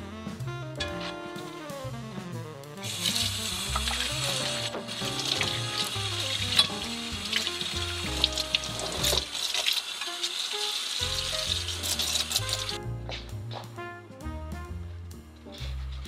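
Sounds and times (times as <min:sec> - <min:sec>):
tap water splashing over pan: 0:03.0 - 0:12.8.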